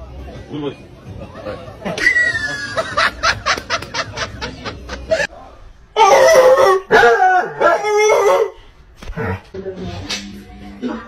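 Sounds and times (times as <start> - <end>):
rapid bursts of laughter: 1.3 - 5.3.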